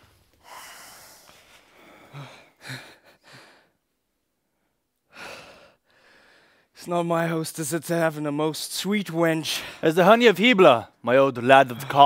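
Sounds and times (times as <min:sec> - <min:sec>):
person breathing close to microphone: 0:00.4 - 0:03.8, 0:05.1 - 0:06.8.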